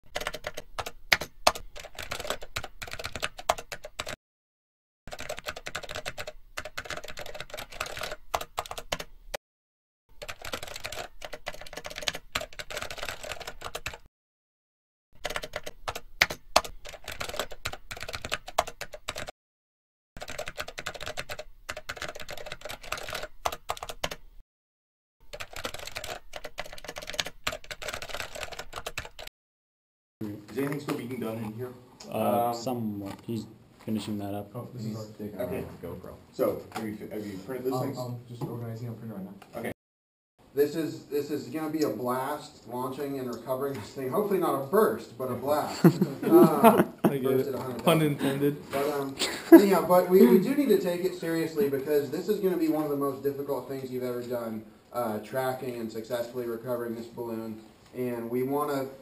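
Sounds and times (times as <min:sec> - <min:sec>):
keyboard keys clicking: 0:00.1 - 0:04.2, 0:05.1 - 0:09.1, 0:10.2 - 0:14.1, 0:15.2 - 0:19.3, 0:20.2 - 0:24.2, 0:25.3 - 0:29.3.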